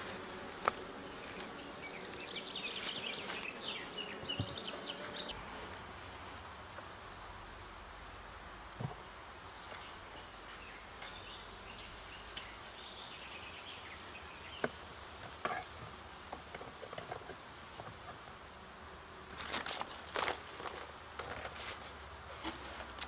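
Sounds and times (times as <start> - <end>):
bees buzzing: 0.0 - 6.0
scraping and rustling: 19.3 - 23.0.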